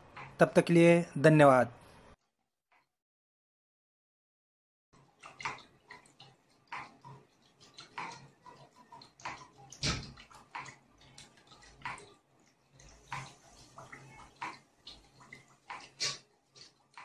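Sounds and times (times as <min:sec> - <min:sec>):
water splashing and dripping: 0:05.0 - 0:17.0.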